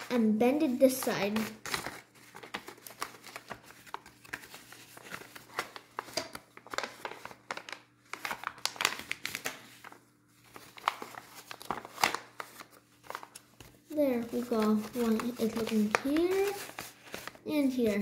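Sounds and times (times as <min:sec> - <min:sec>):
paper rustling and crinkling: 0:00.0 - 0:18.0.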